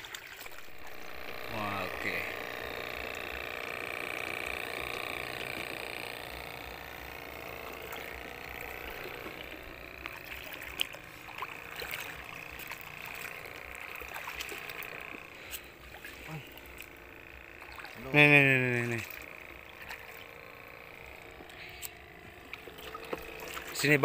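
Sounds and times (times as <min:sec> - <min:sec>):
shallow seawater sloshing: 0:00.0 - 0:00.8
small splashes: 0:00.0 - 0:06.4, 0:07.2 - 0:24.0.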